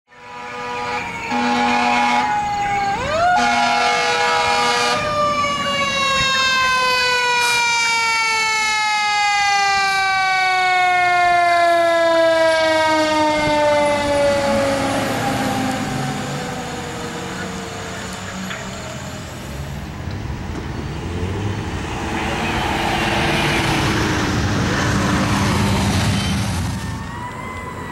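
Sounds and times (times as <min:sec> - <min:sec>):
air horn blasts: 0:00.1 - 0:05.1
mechanical siren wailing: 0:00.2 - 0:19.4, 0:22.1 - 0:27.9.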